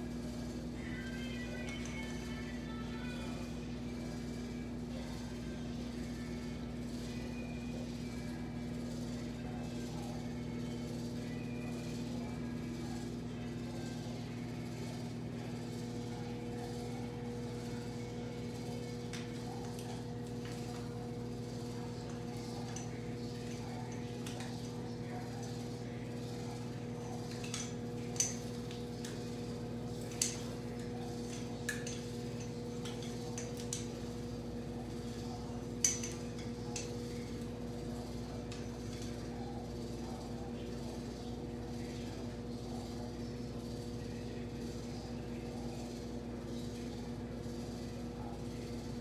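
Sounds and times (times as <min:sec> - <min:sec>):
low electrical hum: 0:00.0 - 0:49.0
flat iron plates clacking: 0:35.8 - 0:36.9.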